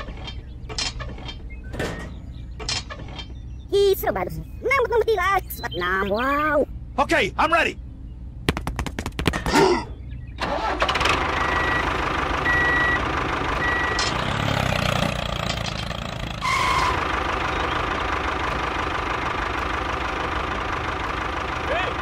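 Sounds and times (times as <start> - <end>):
tractor engine idling: 10.4 - 22.0.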